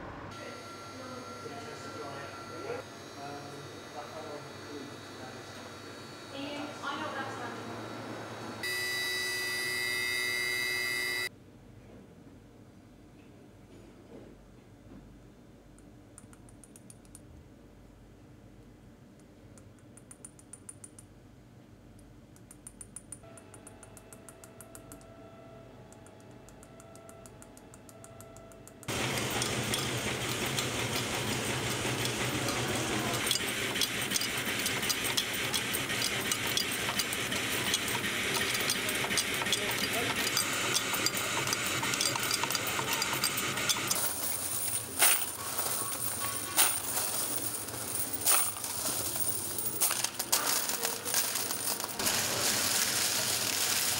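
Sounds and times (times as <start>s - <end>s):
coin press metallic clatter: 28.9s - 53.9s.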